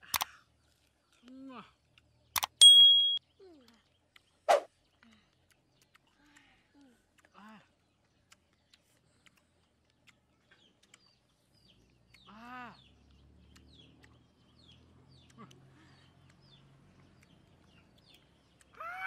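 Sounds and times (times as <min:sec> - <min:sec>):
high falling chirps: 0:02.4 - 0:03.2.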